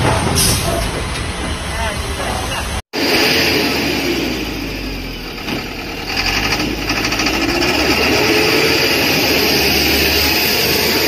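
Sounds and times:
truck engine running: 0:03.0 - 0:11.0.

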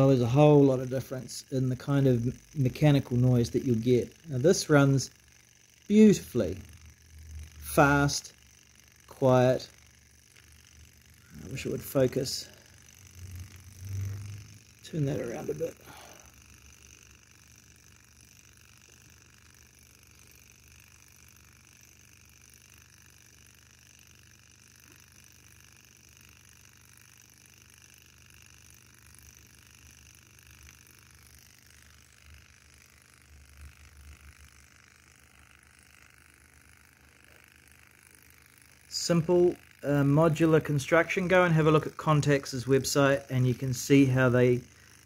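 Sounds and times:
hot air engine chuffing: 0:10.9 - 0:17.2, 0:38.8 - 0:45.0.

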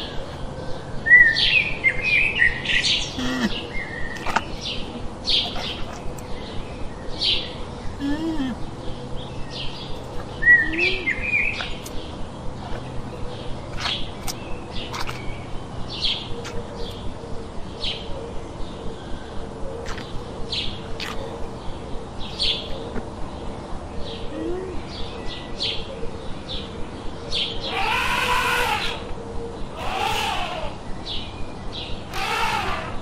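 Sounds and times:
birds chirping: 0:00.0 - 0:33.0
faint steady hum: 0:00.0 - 0:33.0
drawn-out bird call: 0:27.6 - 0:30.8, 0:32.0 - 0:33.0.

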